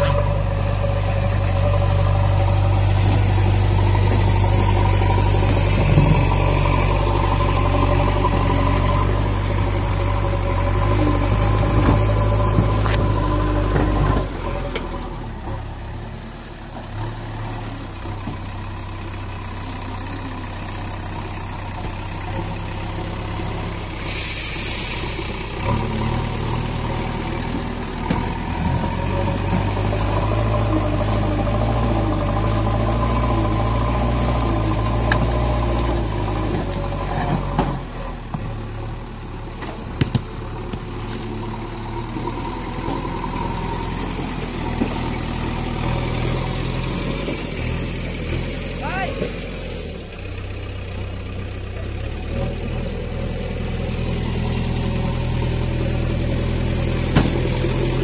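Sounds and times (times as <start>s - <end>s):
diesel engine labouring: 0.0s - 58.0s
short hiss: 24.0s - 25.5s
bucket pushing through soil and rocks: 39.4s - 45.2s.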